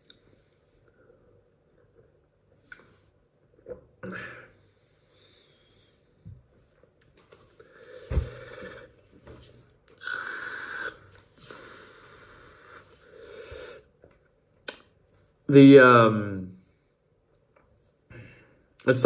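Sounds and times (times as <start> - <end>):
man breathing heavily: 7.6 - 9.0, 10.4 - 13.9.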